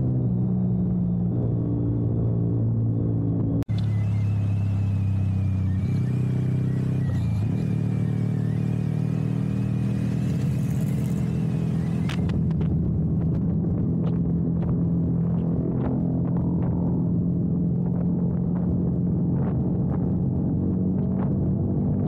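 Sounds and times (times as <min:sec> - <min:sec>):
motorcycle engine cruising: 0:00.0 - 0:22.0
wind on microphone: 0:09.9 - 0:22.0.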